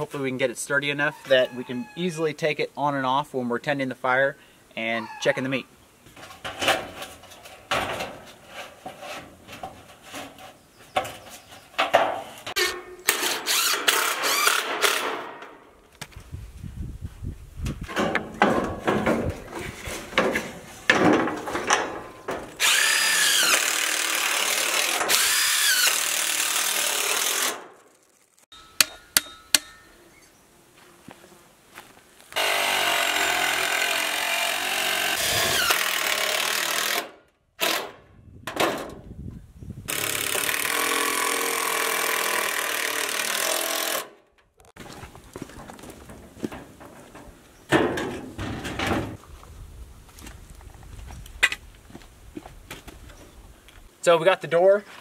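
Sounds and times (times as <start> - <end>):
metal roofing panels clattering: 6.2 - 12.9, 17.9 - 22.6, 45.5 - 49.2.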